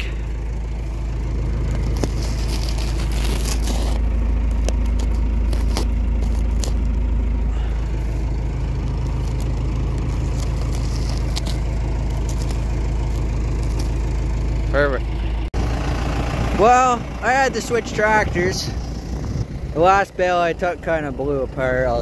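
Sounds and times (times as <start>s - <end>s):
tractor engine idling: 0.0s - 22.0s
knife slitting plastic wrap: 1.8s - 4.0s.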